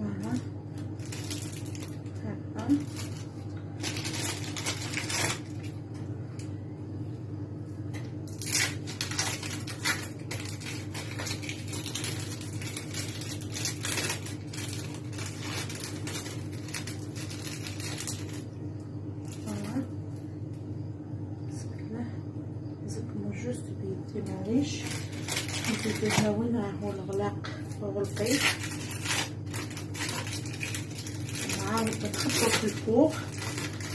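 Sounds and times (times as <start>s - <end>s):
plastic wrappers crinkling: 0.0s - 6.0s, 8.2s - 18.5s, 24.4s - 33.9s
steady low hum: 0.0s - 33.9s.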